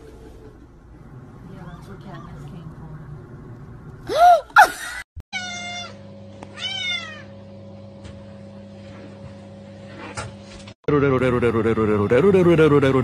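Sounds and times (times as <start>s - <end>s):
cat meowing: 5.4s - 7.3s.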